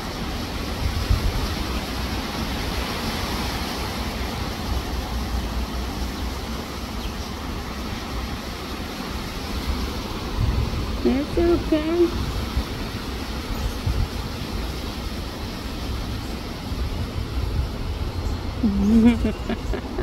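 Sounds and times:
wind gusting across microphone: 0:00.0 - 0:20.0.

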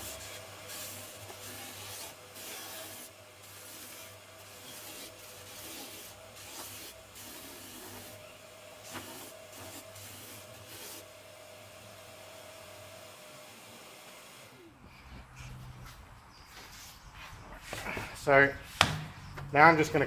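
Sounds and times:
wood sanding rasp: 0:00.0 - 0:11.1.

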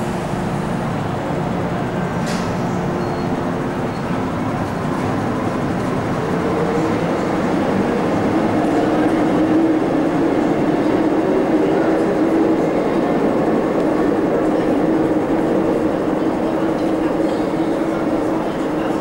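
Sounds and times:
train rumbling in tunnel: 0:00.0 - 0:19.0.

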